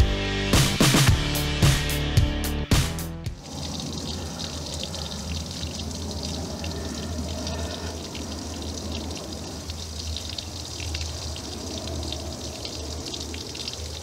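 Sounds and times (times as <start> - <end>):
small drips and splashes: 3.3 - 14.0
water trickling over rock: 3.3 - 14.0.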